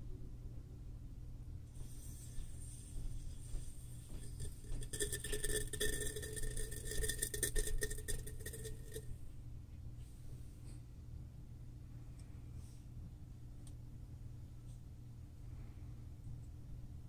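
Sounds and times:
lighter flame hissing on a can: 1.8s - 9.0s
fast crackling: 4.7s - 9.0s.

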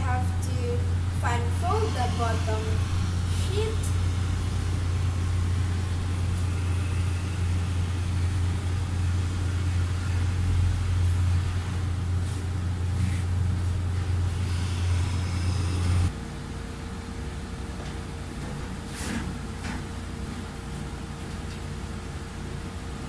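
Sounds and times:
faint hum: 0.0s - 23.0s
low machine hum: 0.0s - 23.0s.

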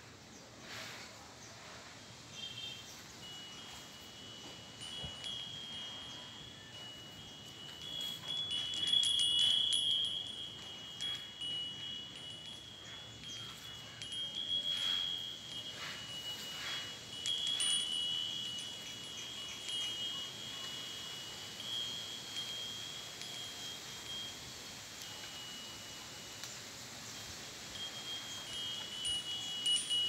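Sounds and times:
bell wind chime ringing: 2.3s - 30.0s.

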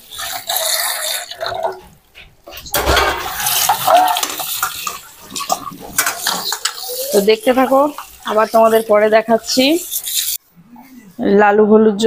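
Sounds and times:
tap water splashing on steel plate: 2.7s - 6.8s.

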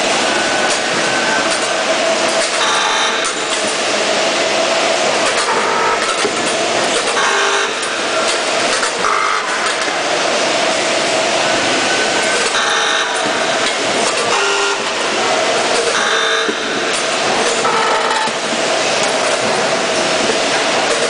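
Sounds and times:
machine hum with held tone: 0.0s - 6.4s, 8.9s - 19.0s.

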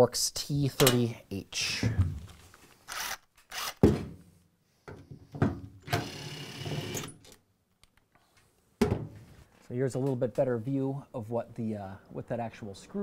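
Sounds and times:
cordless driver motor: 2.9s - 3.8s, 5.9s - 7.1s.

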